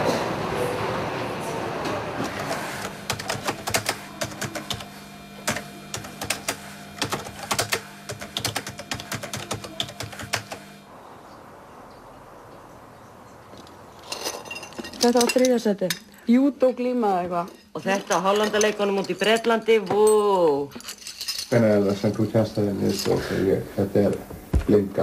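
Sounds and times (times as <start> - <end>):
typewriter keys clacking: 3.1 - 4.9, 5.5 - 10.6.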